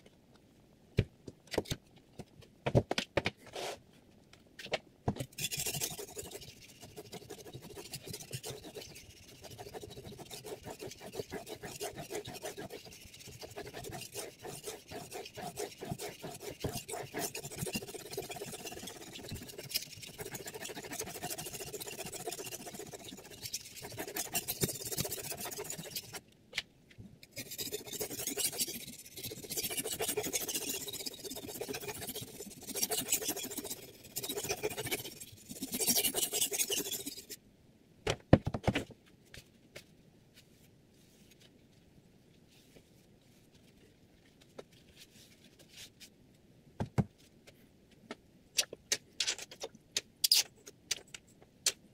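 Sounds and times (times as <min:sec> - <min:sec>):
cloth rubbing stone: 0:05.3 - 0:26.2, 0:27.4 - 0:37.4
knife scraping on whetstone: 0:05.3 - 0:26.2, 0:27.3 - 0:37.4.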